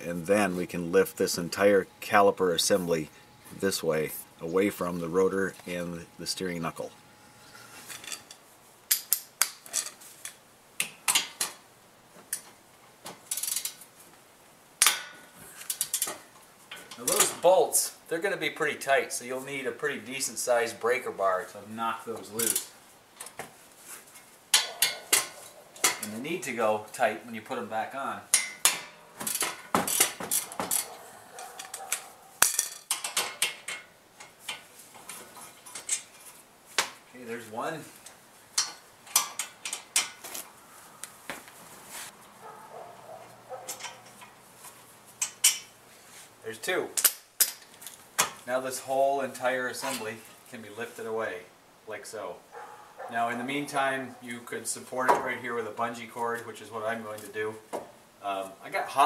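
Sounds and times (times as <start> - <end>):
metal tools clinking: 7.9 - 10.4, 22.3 - 22.7, 24.5 - 26.2, 28.3 - 36.4, 43.5 - 44.4.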